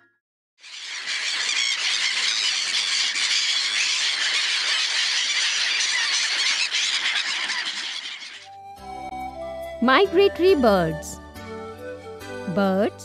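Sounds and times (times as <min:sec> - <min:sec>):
flock of gulls calling: 0:00.6 - 0:08.6.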